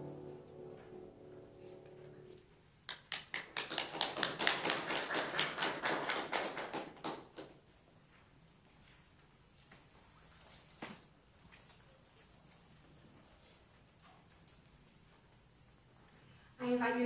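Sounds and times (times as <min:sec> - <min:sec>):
small group applauding: 0:02.9 - 0:07.6.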